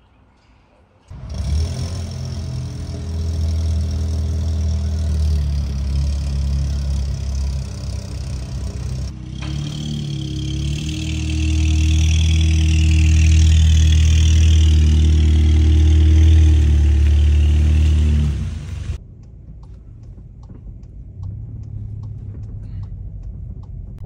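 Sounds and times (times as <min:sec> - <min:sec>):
car engine droning: 0:01.1 - 0:24.0
low rumble: 0:02.1 - 0:24.0
hiss: 0:15.1 - 0:19.0.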